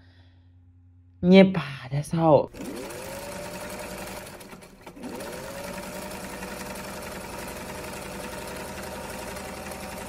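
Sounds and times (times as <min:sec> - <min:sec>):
sewing machine whirring: 0:02.5 - 0:10.0.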